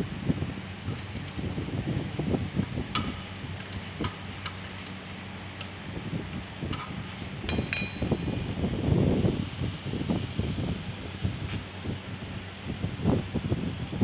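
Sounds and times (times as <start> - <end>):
low rumbling background: 0.0 - 14.0
metallic clinks of tools: 0.9 - 1.5, 6.7 - 8.3.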